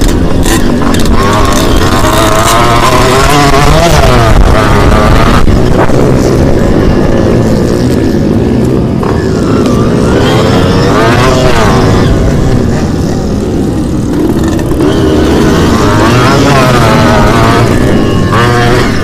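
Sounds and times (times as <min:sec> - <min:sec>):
motocross bike engine revving: 0:00.0 - 0:19.0.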